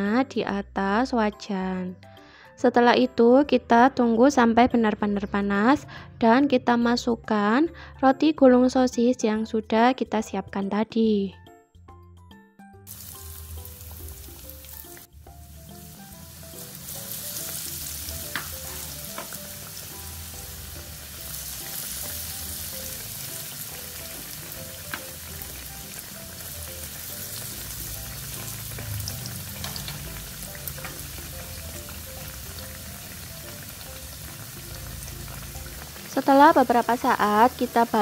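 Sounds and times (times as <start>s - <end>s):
food deep-frying in sizzling oil: 12.9s - 38.0s.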